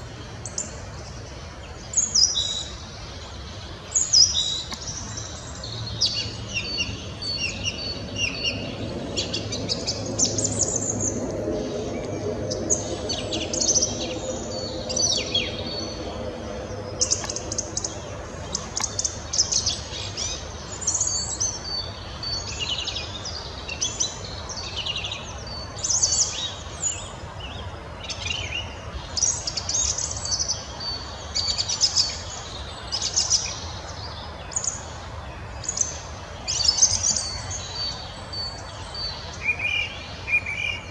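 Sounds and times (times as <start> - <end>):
song thrush singing: 0.0 - 40.9
faint low drone: 4.9 - 23.2.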